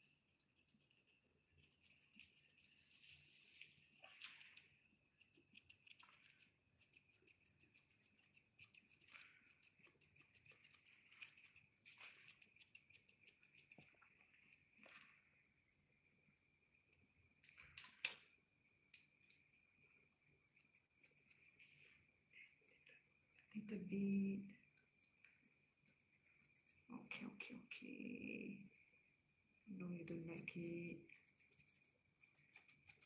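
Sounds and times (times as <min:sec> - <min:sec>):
scissors snipping fur: 0:00.0 - 0:03.0, 0:05.2 - 0:11.5, 0:20.6 - 0:21.6, 0:30.0 - 0:33.0.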